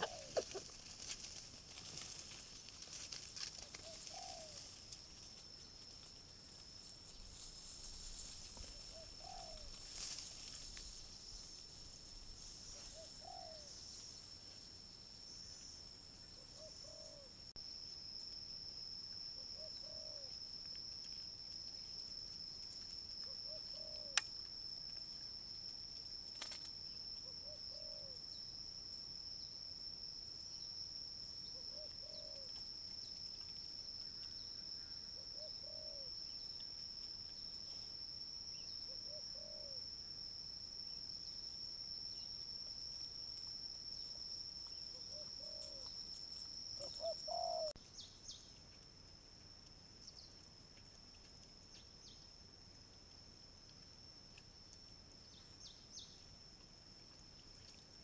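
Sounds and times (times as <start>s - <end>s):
dove cooing: 0.0s - 0.8s, 3.6s - 4.7s, 8.6s - 9.8s, 12.7s - 13.7s, 16.4s - 17.3s, 19.6s - 20.3s, 23.3s - 24.2s, 27.4s - 28.2s, 31.5s - 32.5s, 35.2s - 36.1s, 39.0s - 39.8s, 45.0s - 45.9s, 46.8s - 47.8s.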